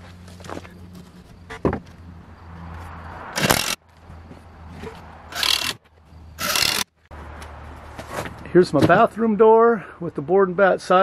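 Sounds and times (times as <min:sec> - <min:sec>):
wooden batten scraping board siding: 0:03.3 - 0:03.8, 0:04.7 - 0:05.8, 0:06.4 - 0:06.9.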